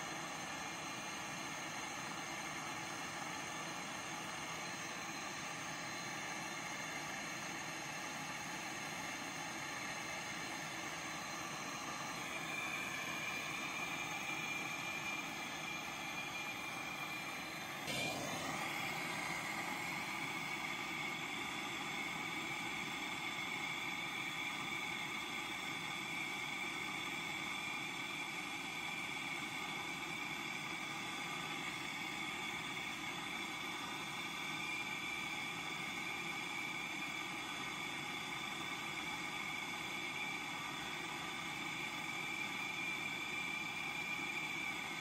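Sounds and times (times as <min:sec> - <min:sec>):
torch flame hissing: 0:12.4 - 0:22.6.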